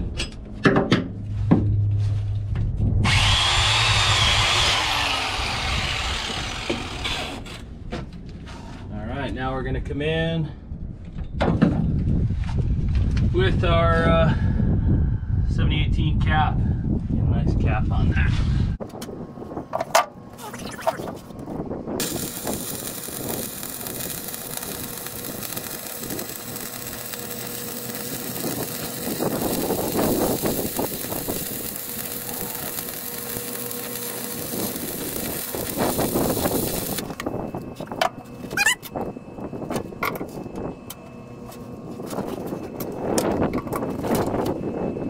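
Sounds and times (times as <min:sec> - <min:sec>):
welding arc crackling and hissing: 0:03.1 - 0:07.4, 0:22.0 - 0:37.1.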